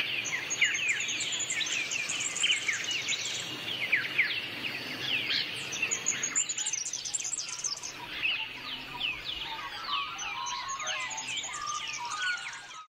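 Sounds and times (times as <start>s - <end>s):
birds chirping and whistling: 0.0s - 12.9s
lower bird calls: 0.0s - 12.9s.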